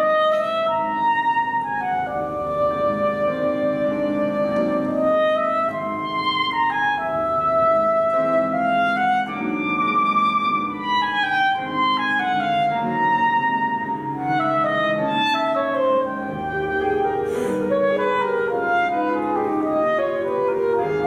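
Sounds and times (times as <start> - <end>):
grand piano accompaniment: 0.0 - 21.0
soprano saxophone melody: 0.0 - 21.0.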